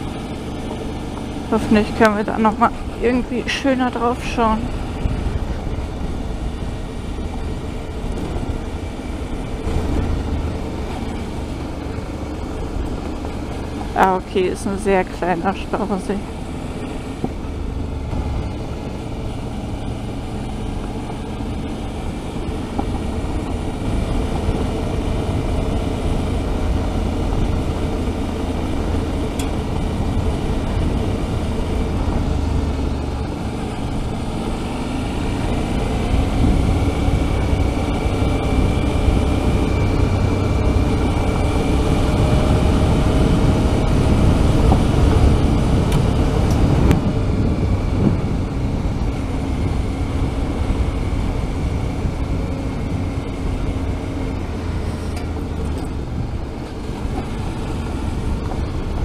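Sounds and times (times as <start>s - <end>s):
motorcycle engine running: 0.0s - 59.0s
tyres on gravel road: 0.0s - 59.0s
wind noise: 0.0s - 59.0s.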